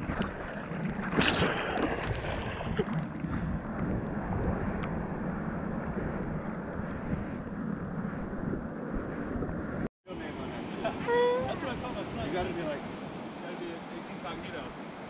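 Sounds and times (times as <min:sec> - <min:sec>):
sharp splash: 0:00.0 - 0:03.1
water sloshing and rushing: 0:00.0 - 0:15.0
surf rushing: 0:09.1 - 0:15.0.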